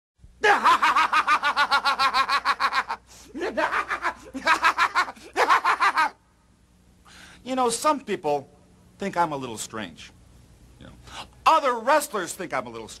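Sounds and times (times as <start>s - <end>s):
man cackling laugh: 0.4s - 6.2s.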